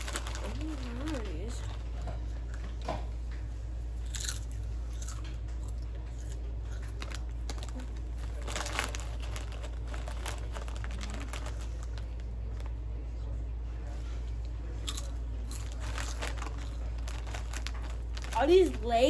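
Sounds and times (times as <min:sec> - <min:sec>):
potato chip crunching: 0:00.0 - 0:02.0, 0:04.0 - 0:12.8, 0:14.7 - 0:19.0
steady low hum: 0:00.0 - 0:19.0.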